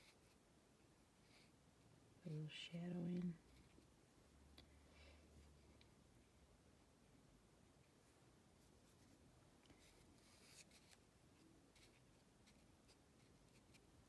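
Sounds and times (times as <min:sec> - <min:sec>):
brush strokes on paper: 0:08.0 - 0:13.9.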